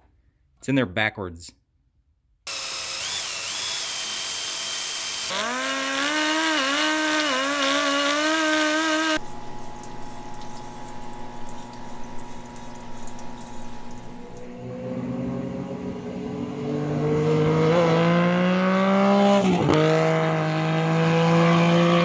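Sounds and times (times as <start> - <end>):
hissing power tool: 2.5 - 9.2
pneumatic die grinder whine: 2.5 - 9.2
running solvent: 8.4 - 14.6
parts washer pump hum: 9.2 - 14.6.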